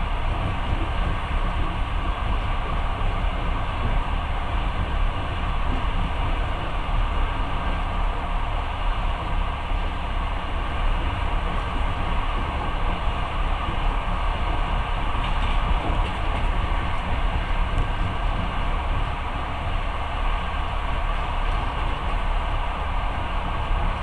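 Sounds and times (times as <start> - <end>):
train rumbling with wheel noise: 0.0 - 24.0.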